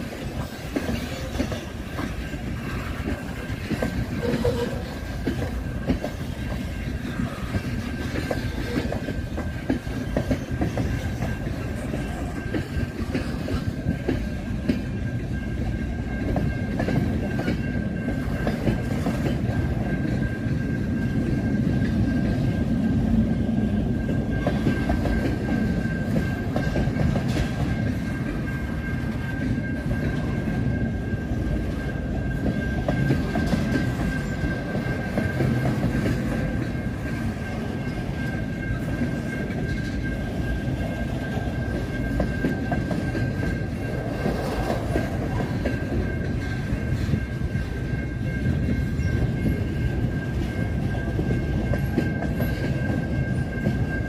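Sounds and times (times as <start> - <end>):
steel wheels rumbling on rail: 0.0 - 54.0.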